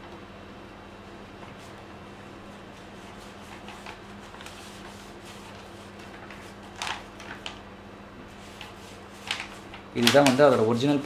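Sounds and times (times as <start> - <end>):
steady low hum: 0.0 - 11.0
paper rustling: 2.7 - 7.6, 8.3 - 11.0.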